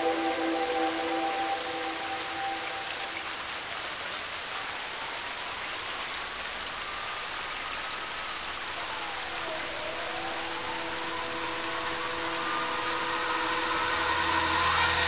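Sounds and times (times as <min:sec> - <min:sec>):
faint rising and falling tone: 0:00.0 - 0:03.6, 0:08.4 - 0:15.0
rain on wet street: 0:00.0 - 0:15.0.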